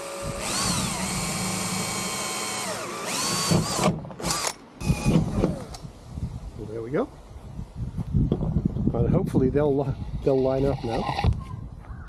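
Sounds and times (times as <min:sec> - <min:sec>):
cordless drill motor whine: 0:00.0 - 0:05.3.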